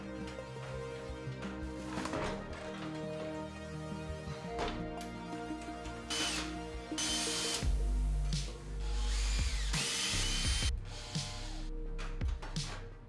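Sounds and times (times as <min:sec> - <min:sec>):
background music: 0:00.0 - 0:13.0
cordless drill whining: 0:06.0 - 0:07.6, 0:09.0 - 0:11.1.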